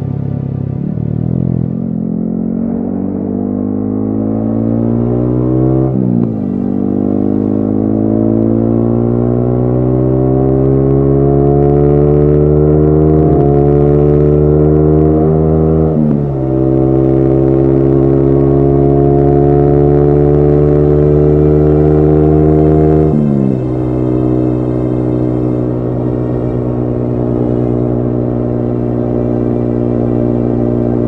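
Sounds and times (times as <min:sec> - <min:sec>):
motorcycle engine accelerating: 0:00.0 - 0:31.0.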